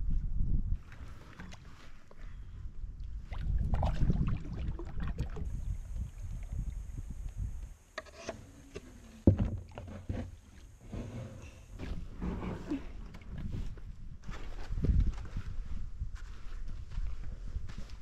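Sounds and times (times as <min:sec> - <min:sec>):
wind rumble on microphone: 0:00.0 - 0:07.8, 0:10.8 - 0:18.0
paddle splashing water: 0:00.8 - 0:02.3, 0:03.1 - 0:06.6.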